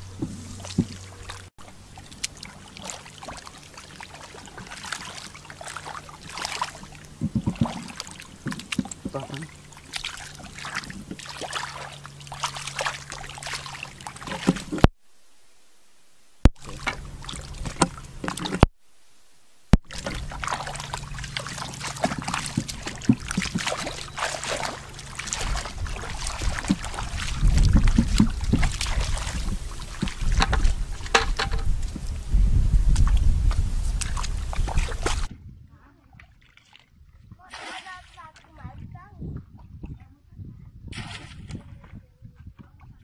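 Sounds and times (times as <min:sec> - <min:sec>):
hands splashing in muddy water: 0:00.1 - 0:14.8, 0:19.8 - 0:31.8, 0:32.9 - 0:35.3.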